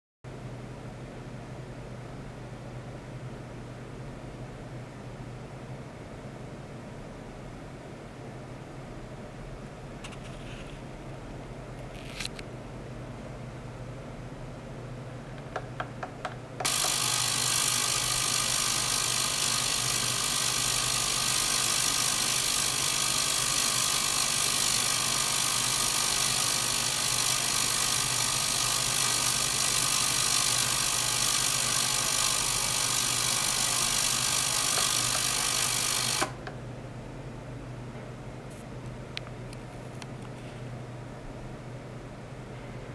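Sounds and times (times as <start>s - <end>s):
ultrasonic cleaner hissing and buzzing: 16.6s - 36.5s.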